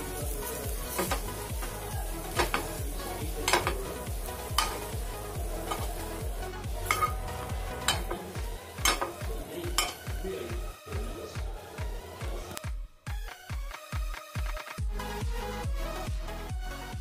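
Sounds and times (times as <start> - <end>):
light sizzle: 0.0 - 10.2
background music with beat: 0.0 - 17.0
metal spoon scraping a pan: 0.8 - 1.4, 2.3 - 5.0, 5.6 - 10.2.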